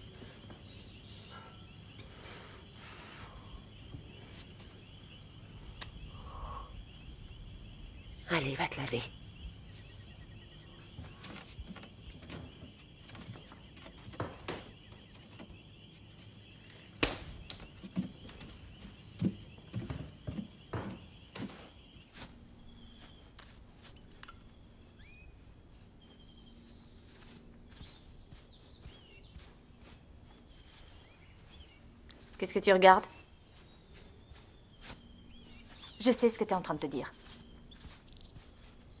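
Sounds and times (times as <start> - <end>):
insects chirping: 0.0 - 39.0
soft knocks and thumps: 11.0 - 15.6, 17.1 - 21.8.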